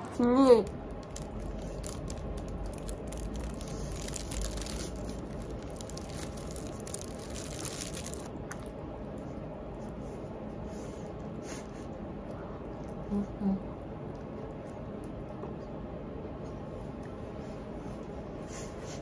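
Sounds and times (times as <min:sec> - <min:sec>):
room background noise: 0:00.0 - 0:19.0
food wrapping crinkling: 0:00.2 - 0:08.8.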